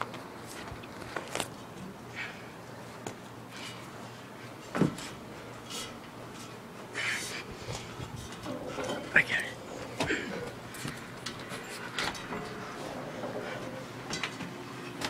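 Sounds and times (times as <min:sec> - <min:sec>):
scuffs and knocks of climbing: 0:00.0 - 0:15.0.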